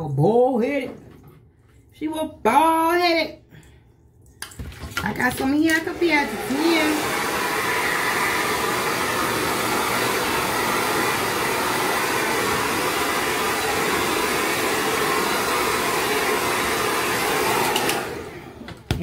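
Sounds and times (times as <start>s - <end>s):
hair dryer blowing: 5.2s - 18.9s.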